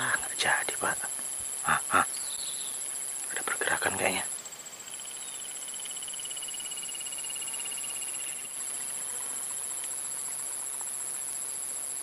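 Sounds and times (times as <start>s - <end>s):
insects chirring: 0.0s - 12.0s
rapid pulsing insect trill: 0.0s - 12.0s.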